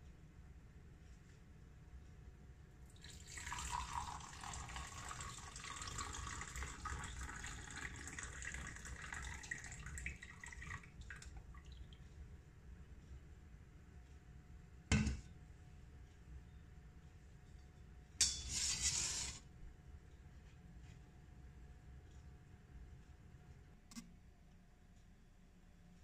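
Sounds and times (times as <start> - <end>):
coffee pouring into mug: 3.0 - 11.4.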